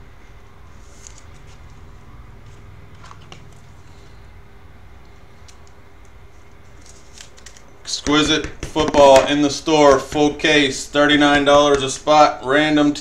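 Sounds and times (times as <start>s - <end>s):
card sleeve rustling: 0.8s - 1.8s, 6.4s - 7.8s.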